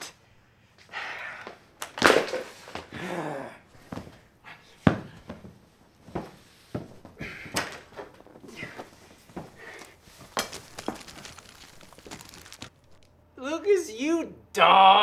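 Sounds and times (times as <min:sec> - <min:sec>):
man grunting: 0:02.9 - 0:03.7.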